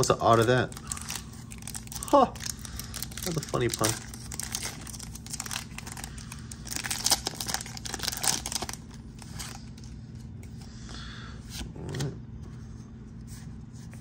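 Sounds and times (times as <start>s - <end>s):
foil wrapper tearing and crinkling: 0.0s - 9.9s.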